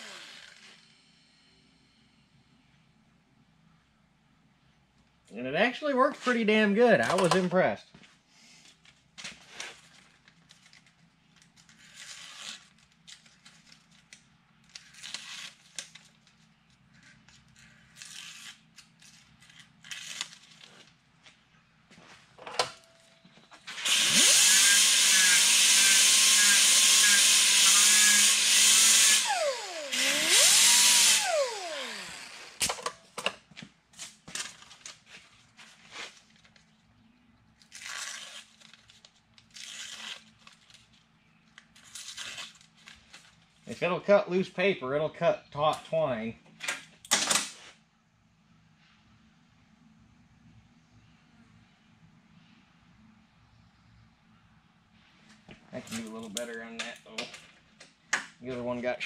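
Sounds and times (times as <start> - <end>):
air sander whining: 0.0 - 1.3, 23.7 - 32.7
quiet scraping and handling: 33.9 - 37.2.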